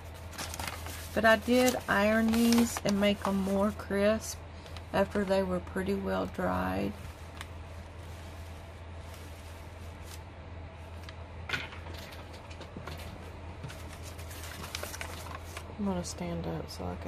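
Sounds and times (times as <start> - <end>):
paper sheets rustling: 0.0 - 4.0, 6.8 - 10.3, 11.9 - 15.7
steady low hum: 0.0 - 17.0.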